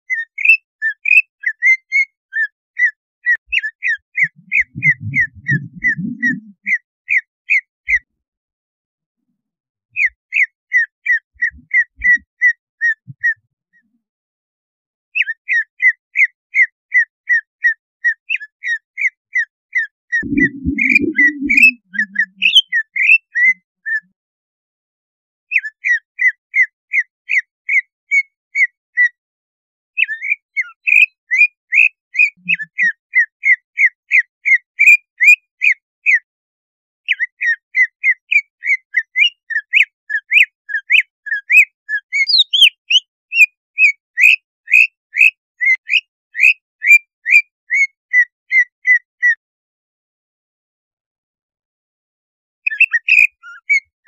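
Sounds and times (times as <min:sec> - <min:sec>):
bird singing sharp whistled notes: 0:03.3 - 0:07.3, 0:20.2 - 0:23.6, 0:42.2 - 0:47.4
low rumble: 0:04.3 - 0:06.6, 0:20.2 - 0:22.2.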